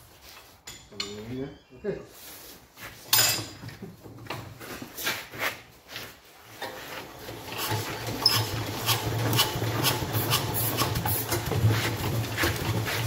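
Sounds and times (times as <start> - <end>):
hand crank scraping and knocking: 6.6 - 13.0.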